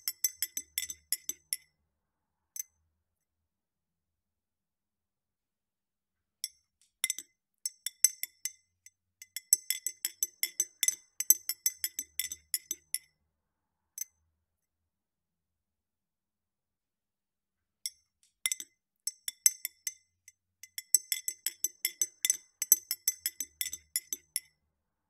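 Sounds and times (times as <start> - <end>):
spoon clinking in glass: 0.0 - 1.6, 20.7 - 24.5.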